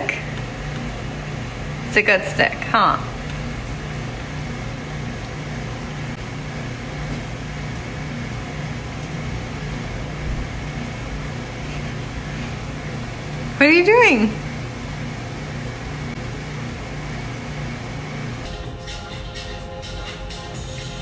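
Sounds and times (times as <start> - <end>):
low mechanical hum: 0.0 - 21.0.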